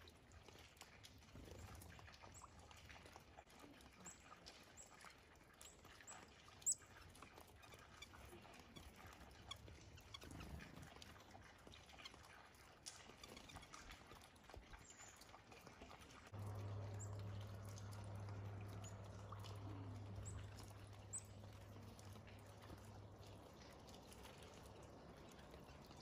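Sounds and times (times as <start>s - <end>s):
songbirds chirping: 16.3s - 26.0s.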